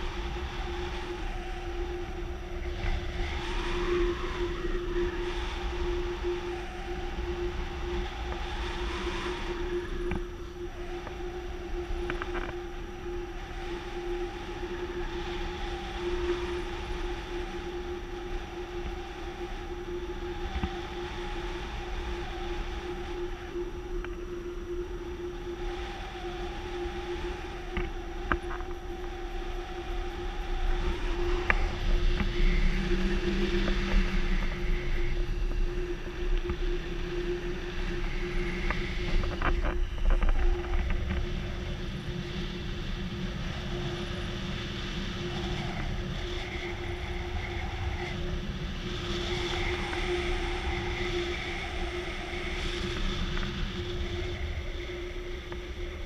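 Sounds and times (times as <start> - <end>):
wind rushing over microphone: 0.0 - 56.0.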